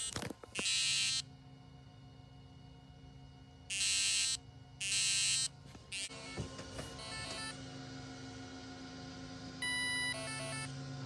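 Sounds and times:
harsh buzzer blasts: 0.0s - 1.3s, 3.7s - 7.6s
fan hum: 0.0s - 11.0s.

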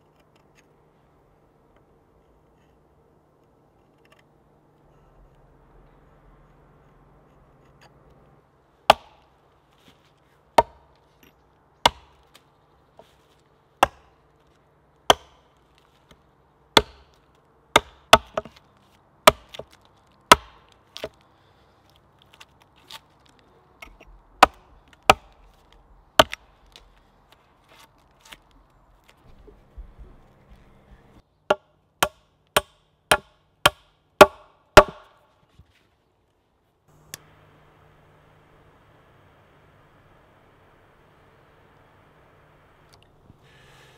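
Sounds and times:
axe chopping log: 8.8s - 9.3s, 10.6s - 11.0s, 11.8s - 12.4s, 13.8s - 14.2s, 15.0s - 15.5s, 16.7s - 18.6s, 19.2s - 21.2s, 24.4s - 25.5s, 26.2s - 26.8s, 31.5s - 35.2s.

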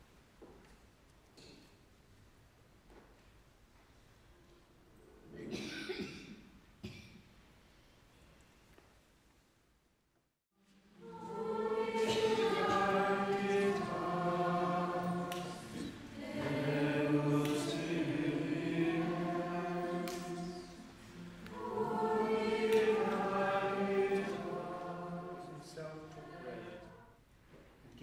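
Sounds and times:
choir singing a hymn: 10.8s - 27.2s.

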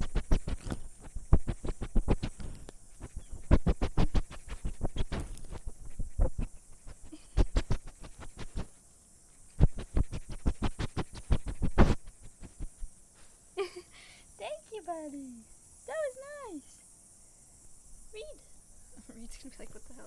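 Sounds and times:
animal mouthing microphone clicks: 0.0s - 8.7s, 9.5s - 12.7s
animal sniffing: 0.0s - 8.8s, 9.4s - 13.3s.

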